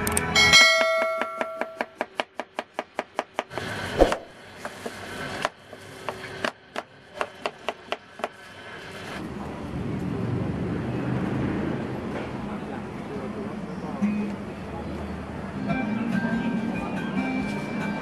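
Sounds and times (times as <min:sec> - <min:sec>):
knife chopping on wooden board: 0:00.8 - 0:04.3
knife slicing apple: 0:03.5 - 0:04.4.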